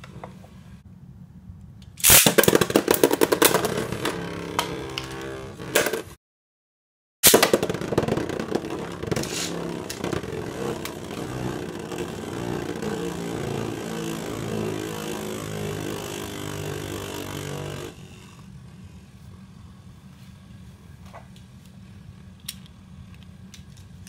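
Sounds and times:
spinning top whirring on plastic: 2.1s - 6.2s, 7.2s - 18.8s.

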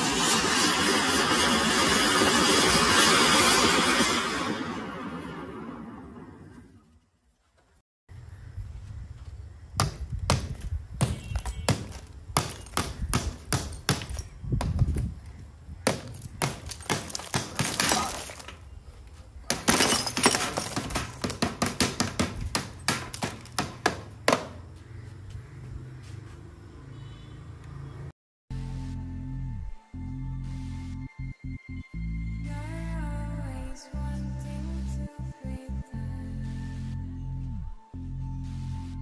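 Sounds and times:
glass breaking and shards falling: 9.8s - 14.3s, 15.9s - 18.6s, 19.5s - 23.9s.

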